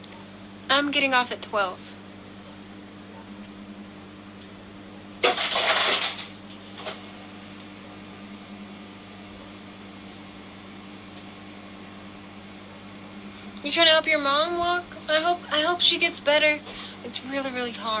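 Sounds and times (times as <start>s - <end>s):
low electrical hum: 0.0s - 18.0s
breathy exhale: 16.6s - 17.0s.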